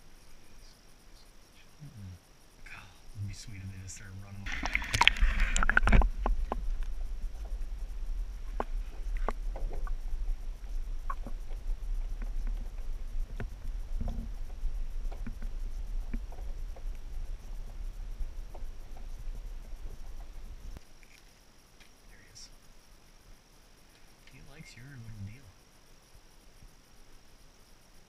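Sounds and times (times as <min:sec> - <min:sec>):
low muffled underwater rumble: 0:01.8 - 0:20.8
faint clicks: 0:04.4 - 0:07.6, 0:08.5 - 0:22.3
splashing and handling noise: 0:04.5 - 0:06.6.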